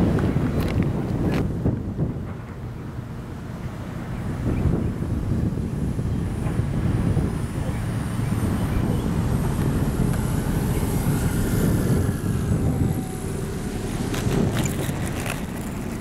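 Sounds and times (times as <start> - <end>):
wind buffeting microphone: 0.0 - 16.0
model plane motor whine: 8.4 - 16.0.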